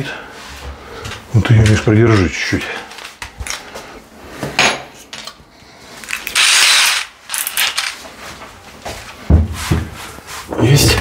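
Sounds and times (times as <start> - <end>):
cordless drill drilling into tile: 6.3 - 7.6.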